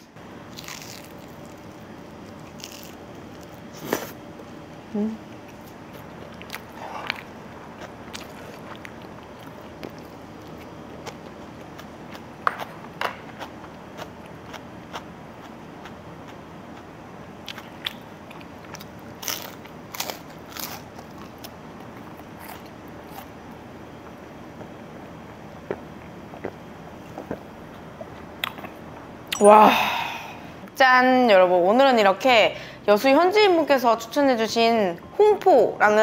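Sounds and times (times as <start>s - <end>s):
low background hum: 0.0s - 36.0s
person chewing food: 0.5s - 4.2s, 5.4s - 29.5s.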